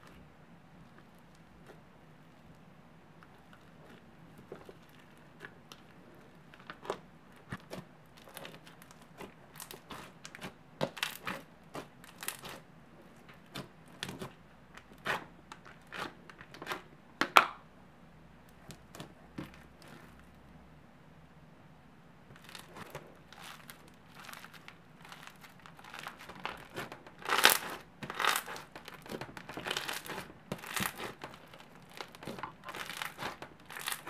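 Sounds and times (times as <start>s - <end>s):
slime beads crackling and popping: 8.2s - 12.6s, 22.4s - 34.0s.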